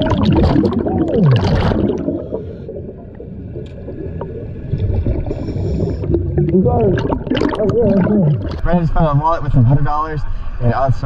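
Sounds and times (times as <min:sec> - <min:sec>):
diver exhaling bubbles underwater: 0:00.0 - 0:08.7
low underwater rumble: 0:00.0 - 0:09.0.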